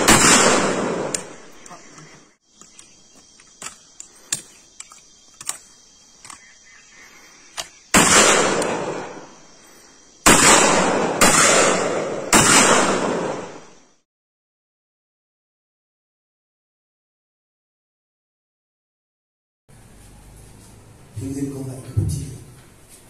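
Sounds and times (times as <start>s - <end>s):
gunshots with rolling echo: 0.0s - 1.6s, 7.9s - 9.5s, 10.2s - 13.9s
faint sharp cracks: 0.0s - 6.6s.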